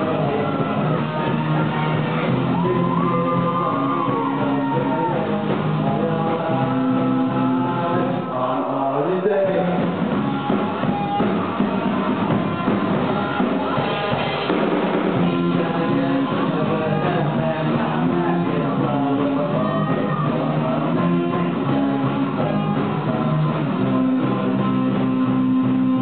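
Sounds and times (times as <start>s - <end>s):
distorted electric guitars: 0.0s - 26.0s
drum kit: 0.0s - 26.0s
person singing: 0.0s - 26.0s.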